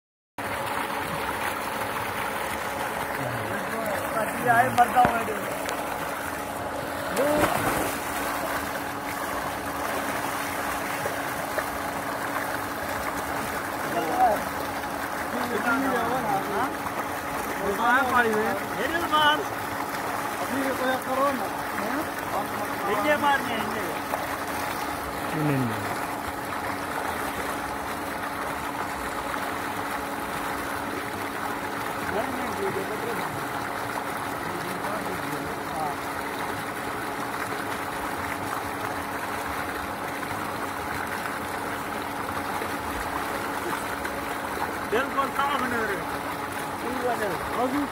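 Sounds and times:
steady low hum: 0:00.4 - 0:47.9
water gushing into tank: 0:00.4 - 0:47.9
man calling out: 0:25.3 - 0:25.9.

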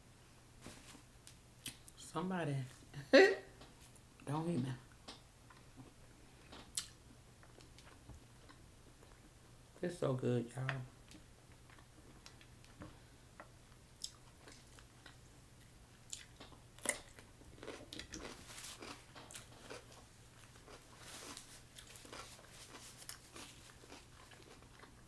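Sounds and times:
person chewing with mouth clicks: 0:05.5 - 0:09.3, 0:11.1 - 0:25.0.

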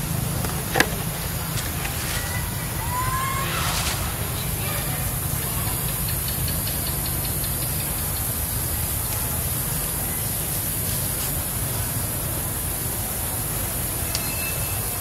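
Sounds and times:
faint rapid ticks: 0:05.6 - 0:09.2.

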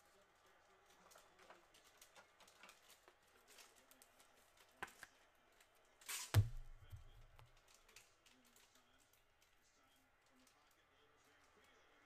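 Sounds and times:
loud heavy thump: 0:06.4 - 0:07.1.

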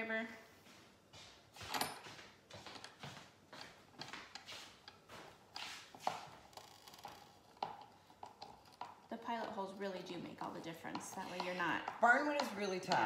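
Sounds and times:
screw scraping into wood: 0:05.8 - 0:09.7.

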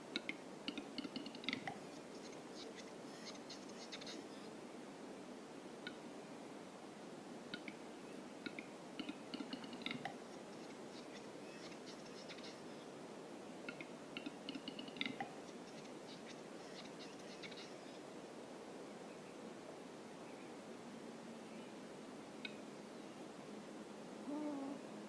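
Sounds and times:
bird display song: 0:00.0 - 0:04.6, 0:07.5 - 0:18.1.

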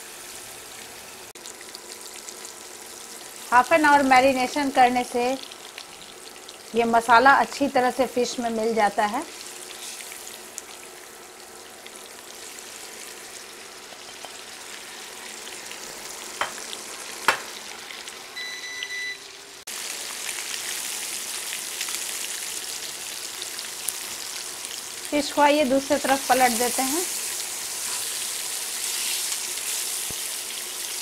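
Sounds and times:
fish sizzling in oil: 0:00.0 - 0:31.0
short electronic beep: 0:18.4 - 0:19.2.

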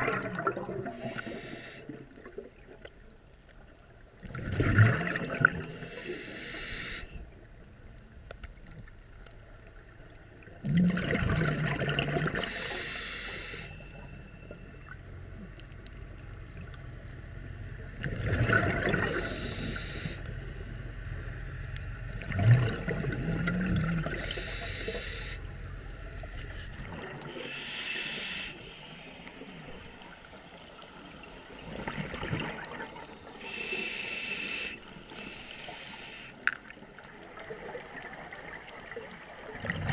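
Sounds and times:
bubbling regulator exhale: 0:00.0 - 0:02.2, 0:10.7 - 0:13.7, 0:18.0 - 0:20.2, 0:22.2 - 0:25.4, 0:39.5 - 0:39.9
regulator inhale hiss: 0:00.9 - 0:02.0, 0:05.7 - 0:07.3, 0:12.4 - 0:14.3, 0:19.1 - 0:20.4, 0:24.1 - 0:25.6, 0:27.3 - 0:31.5, 0:33.2 - 0:36.6.

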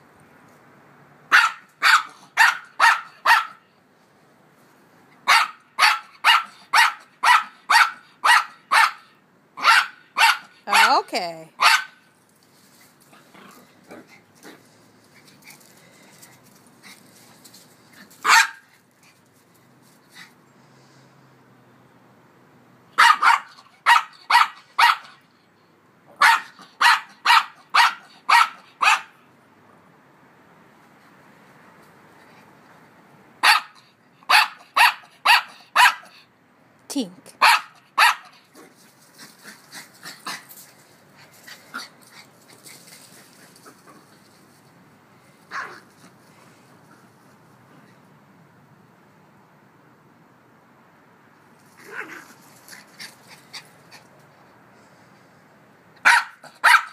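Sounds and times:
puppy barking: 0:01.3 - 0:03.6, 0:05.3 - 0:11.0, 0:11.6 - 0:12.0, 0:18.2 - 0:18.7, 0:23.0 - 0:25.2, 0:26.2 - 0:29.2, 0:33.4 - 0:36.1, 0:37.4 - 0:38.3, 0:56.0 - 0:56.9.

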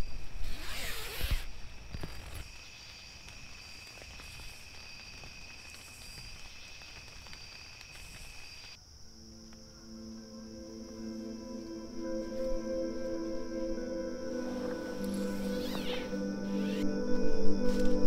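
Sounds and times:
insects trilling: 0:00.0 - 0:18.0
music: 0:09.0 - 0:18.0.

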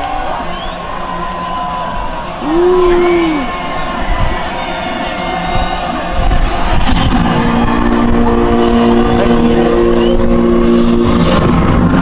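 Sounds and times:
wind rumble on microphone: 0:05.5 - 0:12.0
sound system music chord: 0:07.2 - 0:11.8.

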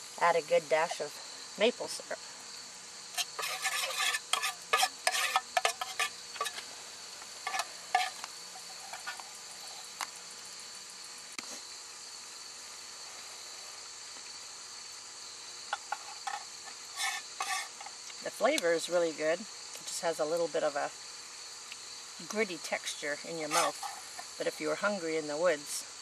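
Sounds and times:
high insect trill: 0:00.0 - 0:26.0
metal spoon scraping metal cup: 0:03.2 - 0:06.6, 0:07.4 - 0:09.2, 0:17.0 - 0:17.9, 0:23.4 - 0:24.3.

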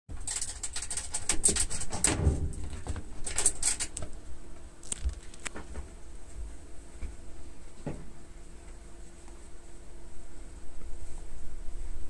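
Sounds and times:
small animal scratching in metal drum: 0:00.1 - 0:04.0.

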